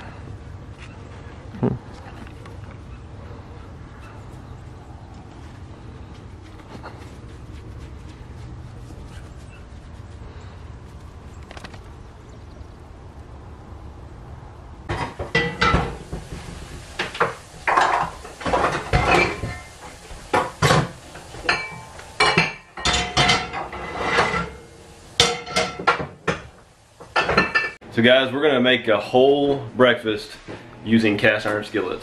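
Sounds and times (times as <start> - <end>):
cast iron skillets clanking on grates: 14.9 - 27.8.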